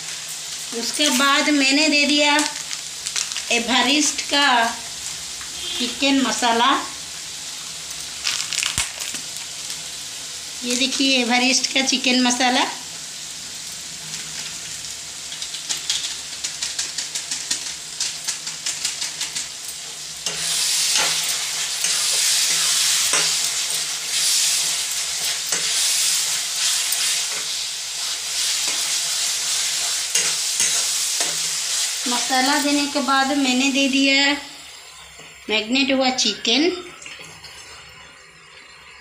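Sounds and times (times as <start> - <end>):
food sizzling in hot oil: 0.0 - 39.0
spatula scraping and knocking pan: 20.2 - 27.6.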